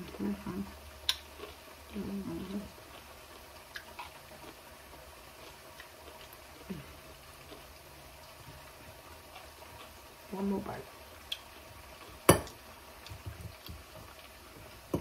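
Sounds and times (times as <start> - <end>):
person humming mmm: 6.6 - 7.0.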